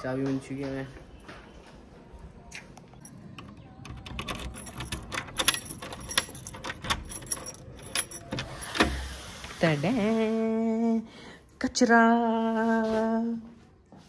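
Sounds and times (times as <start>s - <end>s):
keys jingling: 3.0s - 9.2s.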